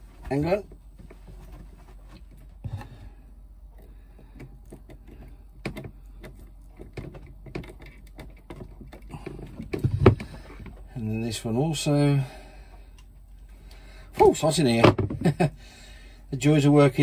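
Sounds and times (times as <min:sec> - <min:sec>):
clicks and rustles of cable: 0:03.7 - 0:10.9.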